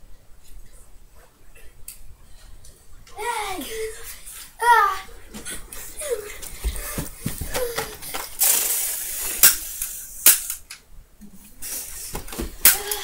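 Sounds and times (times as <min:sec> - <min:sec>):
children's voices: 0:03.1 - 0:05.2
toy gun hissing burst: 0:08.4 - 0:10.6
toy gun snaps: 0:09.4 - 0:10.8.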